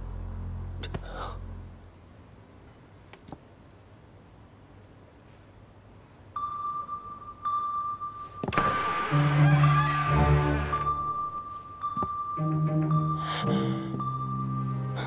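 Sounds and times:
high-pitched ringing tone: 6.4s - 8.5s.

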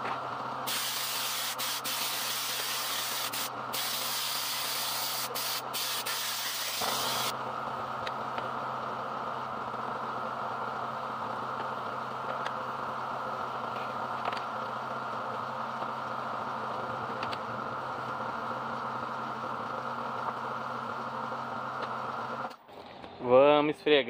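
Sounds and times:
pressure washer motor hum: 0.0s - 9.9s.

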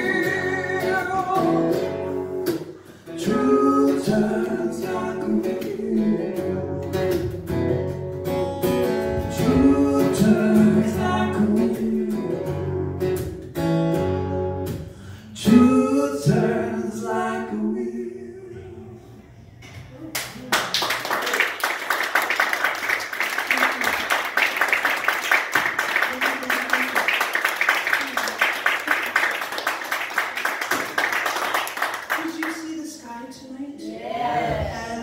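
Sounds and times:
acoustic guitar: 0.0s - 20.1s.

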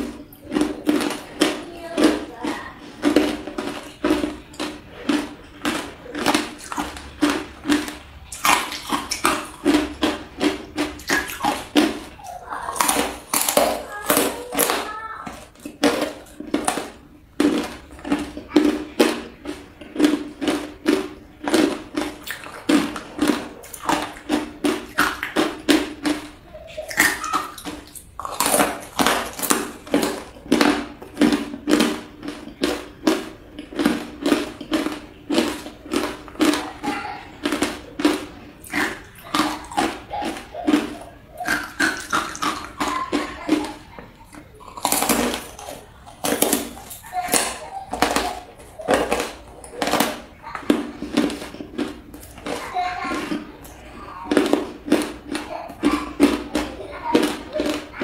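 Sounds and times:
ice being chewed: 0.0s - 58.0s.

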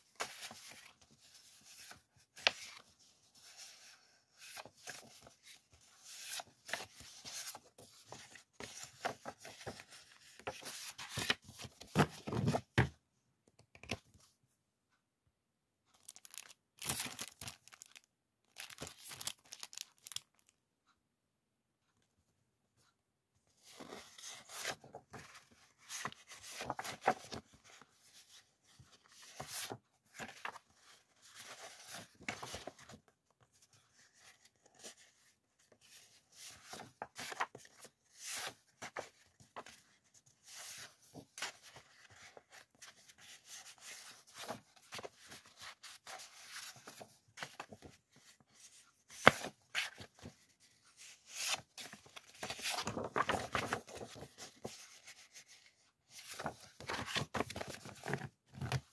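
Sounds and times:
paper sheets rustling and sliding: 0.1s - 12.6s, 23.6s - 33.0s, 33.7s - 58.9s.

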